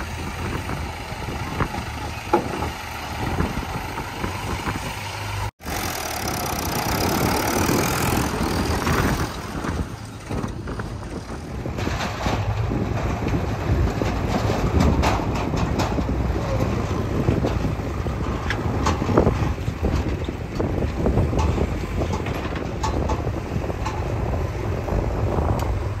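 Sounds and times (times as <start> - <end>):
diesel machinery rumbling: 0.0 - 26.0
metal knocks and clanks: 1.6 - 3.6, 8.7 - 24.2.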